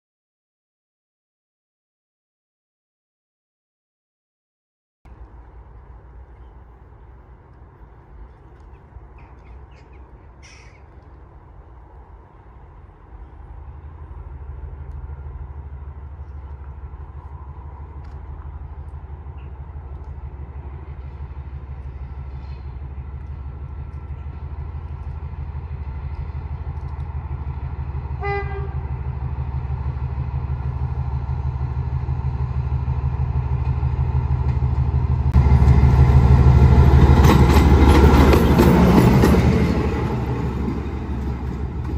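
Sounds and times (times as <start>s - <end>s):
locomotive low drone: 5.1s - 41.9s
locomotive horn toot: 28.2s - 29.0s.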